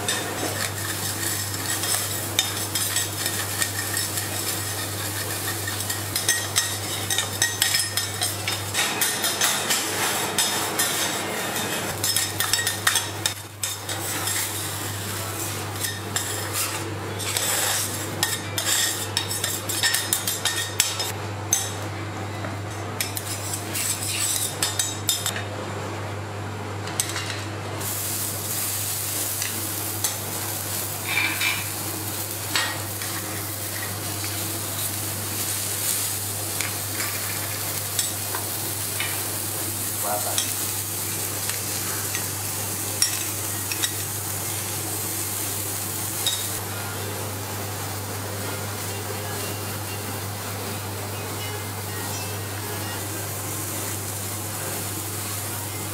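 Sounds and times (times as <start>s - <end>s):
metal spatulas scraping griddle: 0.1s - 20.8s, 23.0s - 24.6s
sizzling hiss: 27.8s - 51.0s.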